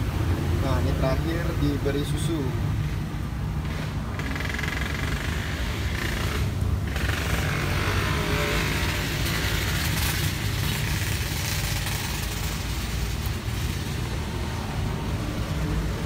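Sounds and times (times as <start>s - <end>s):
street traffic rumble: 0.0s - 16.0s
vehicle passing: 0.0s - 16.0s.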